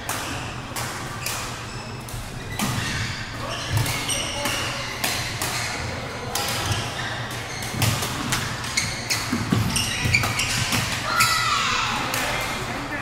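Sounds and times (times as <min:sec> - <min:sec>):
chatter in sports hall: 0:00.0 - 0:13.0
rackets smacking shuttlecock: 0:03.7 - 0:11.1.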